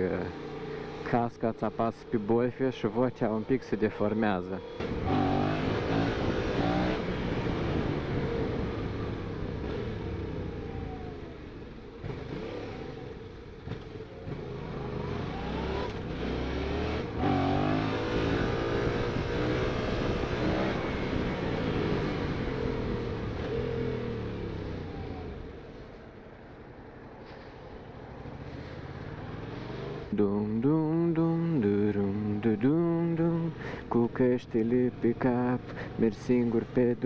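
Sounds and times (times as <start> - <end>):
motorcycle engine revving: 0.0 - 25.9, 28.0 - 37.0.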